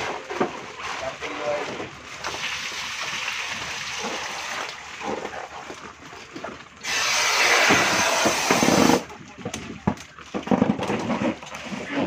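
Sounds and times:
hose hissing into plastic bag: 6.8 - 9.0.

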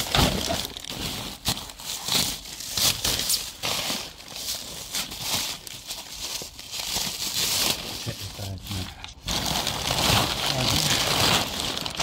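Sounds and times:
plastic bags crinkling and rustling: 0.0 - 12.0.

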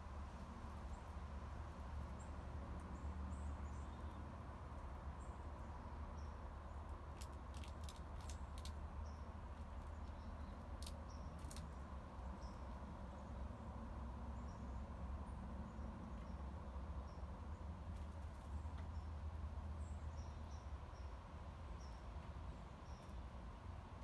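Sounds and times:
beak clicking on peanuts: 7.1 - 11.8.

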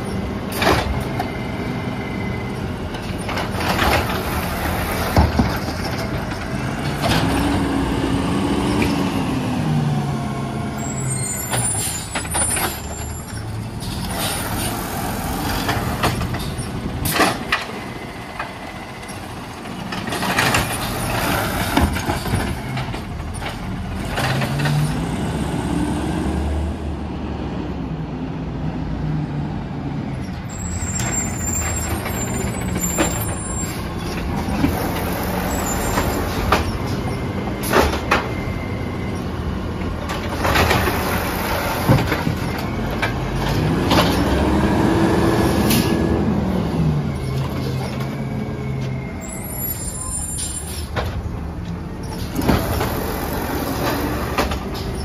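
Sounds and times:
clunks of carts and arm: 0.0 - 1.4, 2.4 - 7.6, 11.4 - 25.1, 30.7 - 44.6, 50.3 - 55.0
garbage truck engine revving: 31.2 - 48.5, 52.1 - 55.0.

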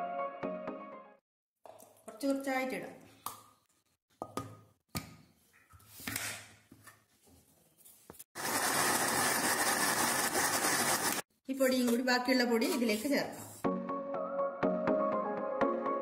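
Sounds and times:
electric mixer grinder running: 8.4 - 11.2.

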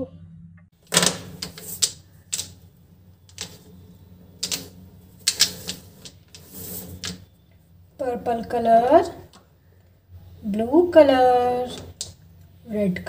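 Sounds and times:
plastic markers clicking together: 4.4 - 6.2.

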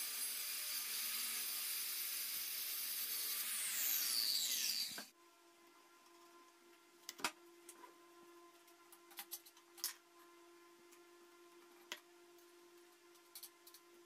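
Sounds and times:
circular saw cutting plywood: 0.0 - 5.1.

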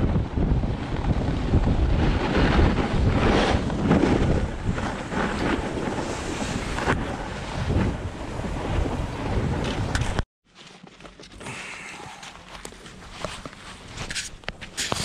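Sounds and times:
wind buffeting microphone: 0.0 - 10.2
skis hissing over snow: 5.2 - 7.0, 13.2 - 15.0
quiet rustling: 10.5 - 15.0.

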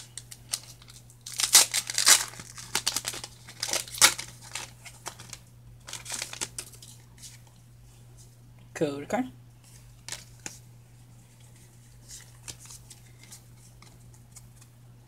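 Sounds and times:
foil wrapper ripping and crinkling: 0.0 - 7.0.

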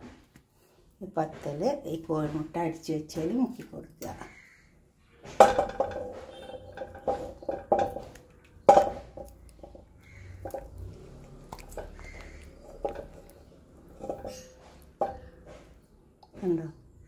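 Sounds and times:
dishes knocking and clinking: 5.2 - 10.8, 11.6 - 15.8.

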